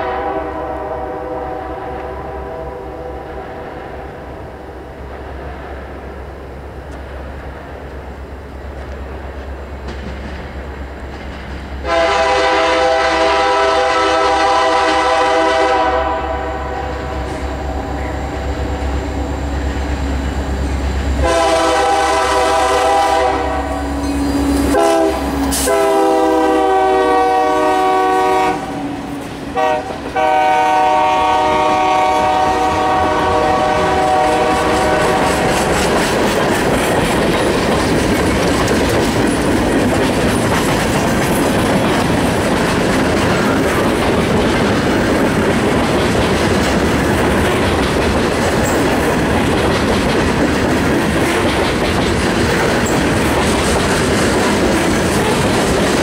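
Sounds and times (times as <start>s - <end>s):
train air horn blasts: 0.0s - 4.0s, 11.8s - 19.4s, 21.2s - 35.7s
locomotive engine rumble: 3.2s - 56.0s.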